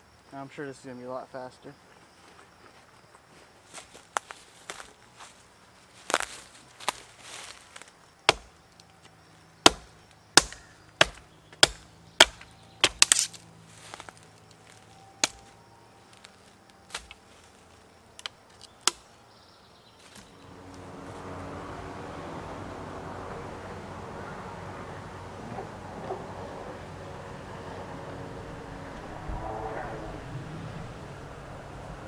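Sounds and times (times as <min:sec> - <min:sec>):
axe chopping into tree: 0:08.3 - 0:08.6, 0:09.6 - 0:13.4, 0:15.2 - 0:15.5, 0:16.9 - 0:17.2, 0:18.2 - 0:19.0.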